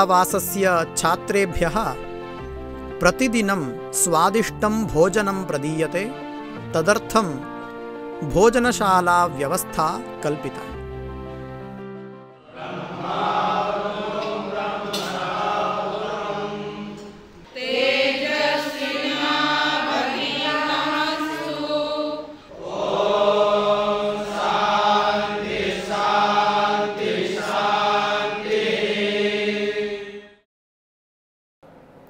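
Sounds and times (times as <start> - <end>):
students chanting in unison: 12.4 - 30.4.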